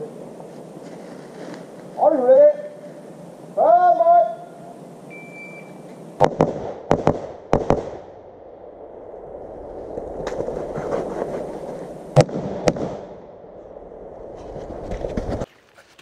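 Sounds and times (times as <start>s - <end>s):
rifle shots: 6.2s - 8.2s, 12.2s - 13.3s.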